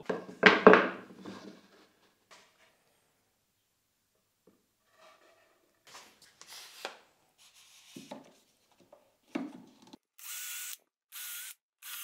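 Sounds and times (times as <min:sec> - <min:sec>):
cordless drill drilling wood: 0:10.2 - 0:12.0.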